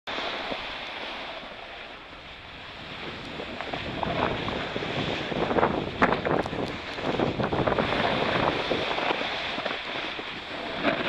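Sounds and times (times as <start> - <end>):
wind over microphone: 0.1 - 11.0
ski edges scraping snow: 2.9 - 11.0.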